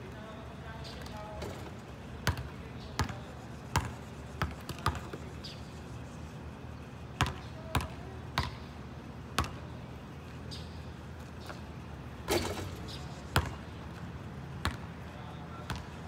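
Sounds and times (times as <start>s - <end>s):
basketball bouncing on asphalt: 0.9s - 5.6s, 7.2s - 9.7s, 12.3s - 14.9s, 15.5s - 16.0s.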